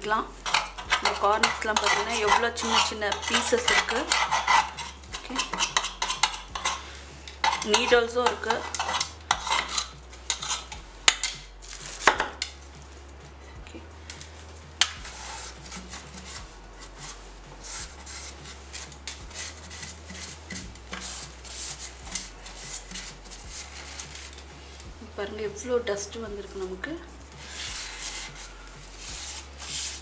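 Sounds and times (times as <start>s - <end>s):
scratchy rubbing: 0.0s - 25.6s, 26.4s - 30.0s
tool clicking on metal pan: 0.4s - 11.5s.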